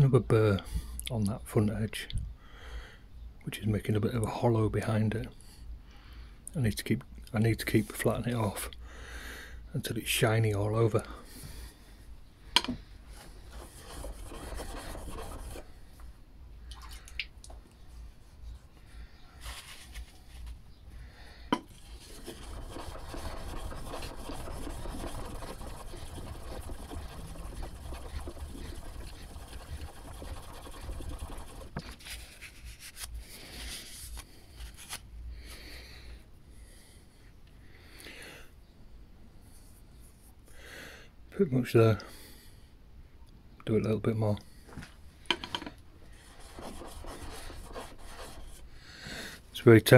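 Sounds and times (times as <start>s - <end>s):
chisel scraping on whetstone: 13.5s - 15.7s, 21.7s - 31.9s, 46.3s - 48.6s.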